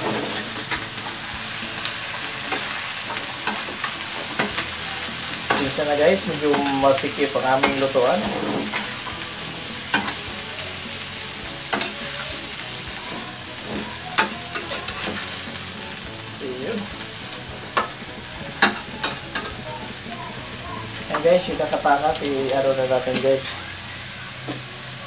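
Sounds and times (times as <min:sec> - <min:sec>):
spatula scraping a pan: 0:00.0 - 0:15.8
food sizzling in a wok: 0:00.0 - 0:25.0.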